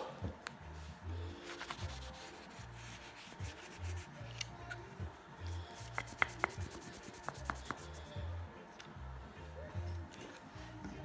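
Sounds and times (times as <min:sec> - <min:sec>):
background music with bass line: 0:00.0 - 0:11.0
hand rubbing wax into wood: 0:01.4 - 0:08.3.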